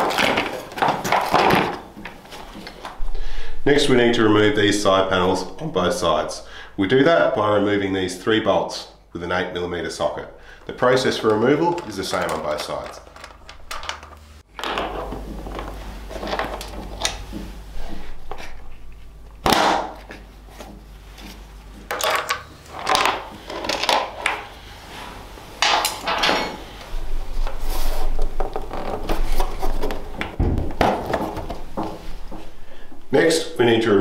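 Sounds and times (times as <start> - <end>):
plastic panel handling noise: 0.0 - 3.0, 11.0 - 17.5, 27.5 - 32.6.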